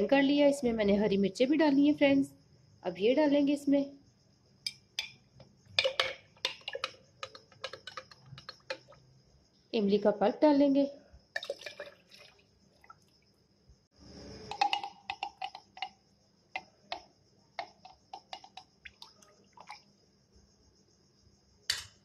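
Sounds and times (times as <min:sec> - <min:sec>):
spoon clinking against container: 0:04.7 - 0:05.2, 0:05.8 - 0:09.0, 0:14.5 - 0:16.0.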